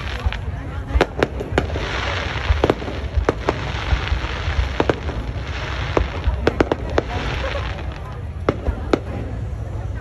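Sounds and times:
fireworks bursting: 0.0 - 9.8
continuous noisy background: 0.0 - 10.0.

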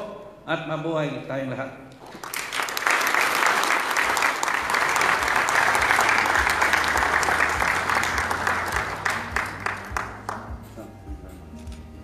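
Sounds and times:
audience applause: 2.1 - 10.6.

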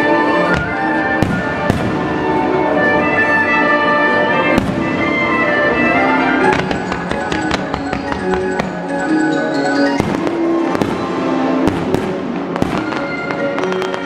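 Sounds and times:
music: 0.0 - 14.0
firework shells bursting: 6.4 - 9.0.

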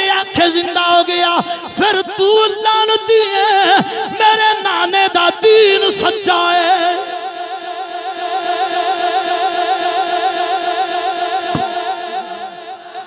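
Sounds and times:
short thump: 11.5 - 11.8.

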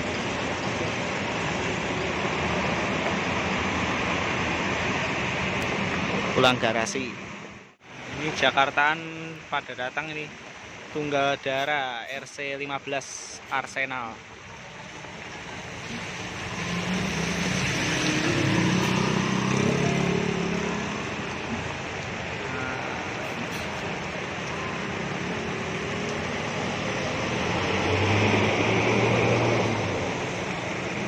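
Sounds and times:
heavy rain hissing: 7.8 - 31.0
bus diesel engine passing: 14.6 - 31.0.

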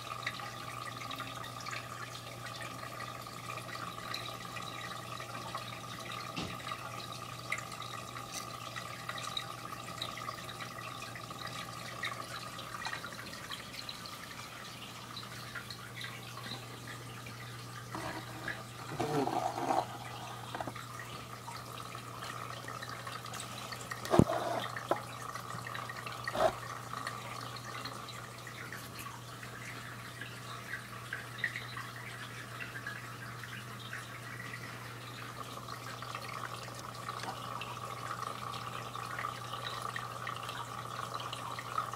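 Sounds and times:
aquarium water trickling: 0.0 - 41.9.

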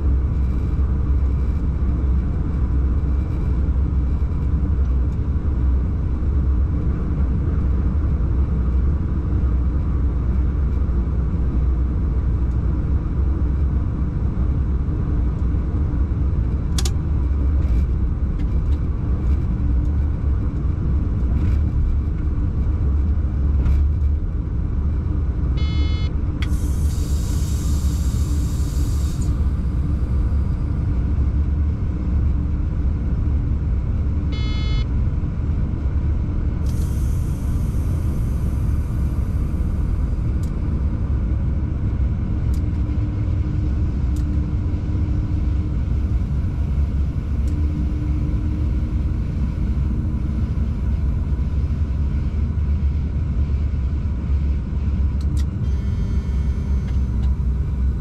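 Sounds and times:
short buzz: 25.6 - 29.8, 34.3 - 34.9, 55.6 - 57.2
air hiss: 26.5 - 29.6.

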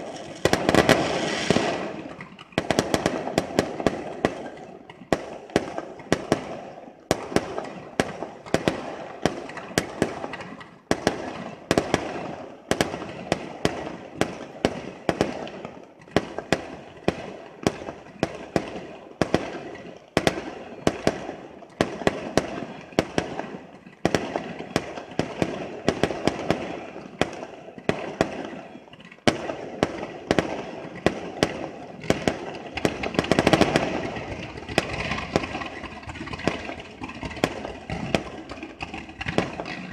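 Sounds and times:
fireworks bangs: 0.0 - 39.9
fireworks crackling: 0.0 - 39.9.

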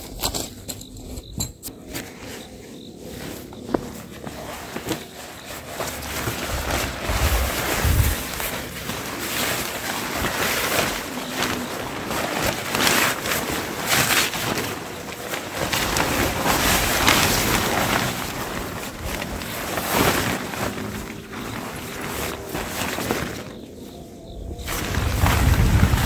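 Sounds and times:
gusty wind on microphone: 6.0 - 8.8, 24.2 - 26.0.

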